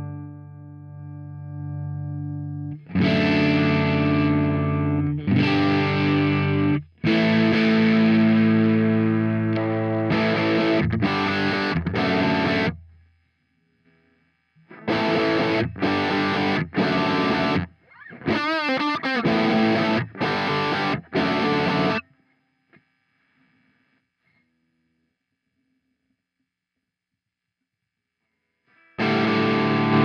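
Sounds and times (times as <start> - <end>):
distorted electric guitar chords: 0.0 - 12.8, 14.7 - 22.2, 28.7 - 30.0.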